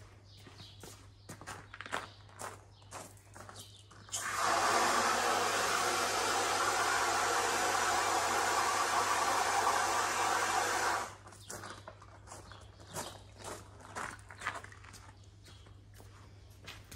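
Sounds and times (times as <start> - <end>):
loud rushing hiss: 4.1 - 11.2.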